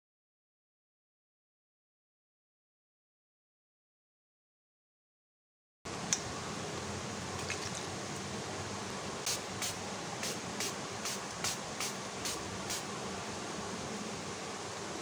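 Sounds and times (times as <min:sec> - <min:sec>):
steady background hiss: 0:05.9 - 0:15.0
spray bottle misting: 0:09.2 - 0:12.9.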